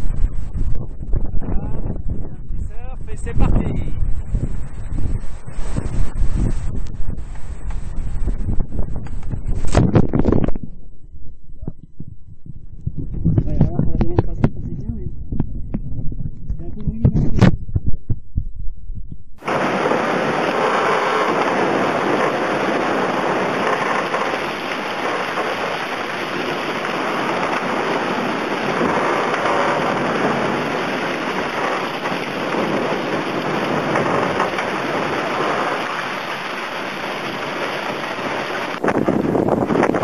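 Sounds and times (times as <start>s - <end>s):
water rushing over boat deck: 19.4s - 40.0s.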